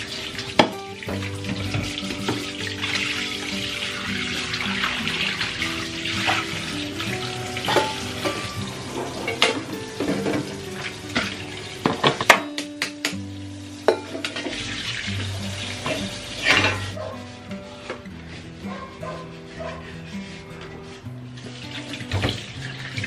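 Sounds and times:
tap water running into sink: 0:00.0 - 0:17.0, 0:21.3 - 0:23.0
background music: 0:00.0 - 0:23.0
cookware clattering on counter: 0:07.6 - 0:13.0, 0:13.9 - 0:14.6, 0:15.8 - 0:17.1.

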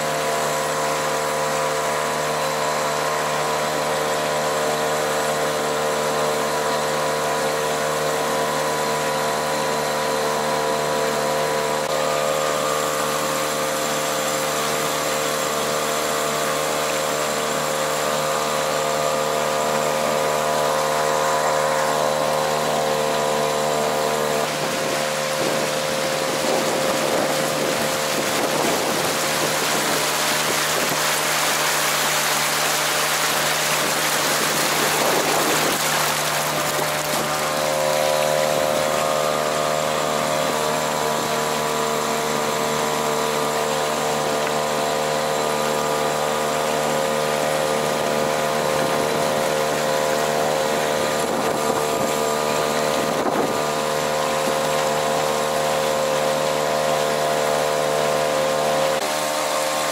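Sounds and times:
outboard motor running: 0:00.0 - 0:59.9
wind on microphone: 0:24.4 - 0:31.6, 0:33.0 - 0:39.0, 0:50.6 - 0:54.6.

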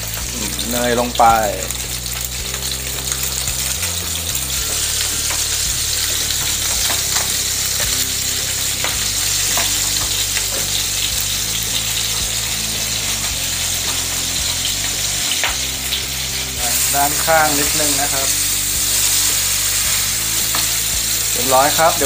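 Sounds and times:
fish frying in pan: 0:00.0 - 0:22.0.

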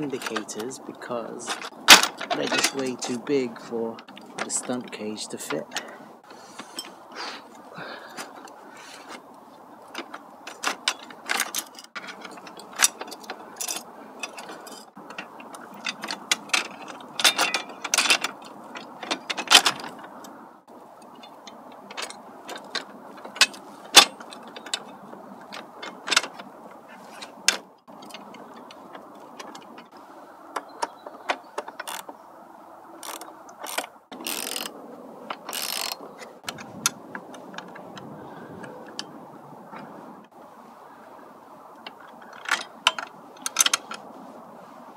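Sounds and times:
steady background noise: 0:00.0 - 0:44.9
metal parts clicking and knocking: 0:01.4 - 0:03.2, 0:09.8 - 0:20.4, 0:21.0 - 0:32.2, 0:33.0 - 0:39.2, 0:41.8 - 0:44.1
socket ratchet clicking: 0:33.0 - 0:34.8, 0:35.4 - 0:36.6.

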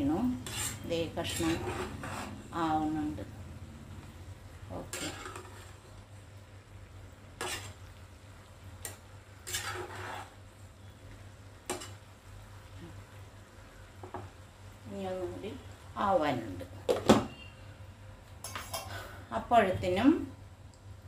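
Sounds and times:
spatula scraping a metal pot: 0:00.2 - 0:02.5, 0:04.8 - 0:05.8, 0:07.4 - 0:07.8, 0:09.4 - 0:10.4.

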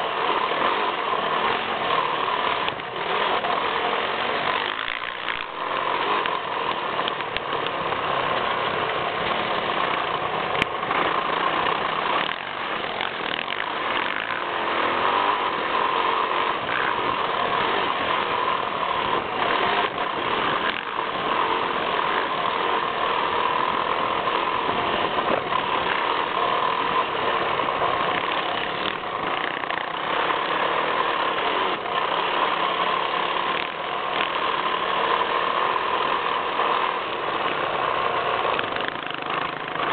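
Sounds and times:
motocross engine running hard: 0:00.0 - 0:39.9
wind noise on microphone: 0:23.9 - 0:26.0.

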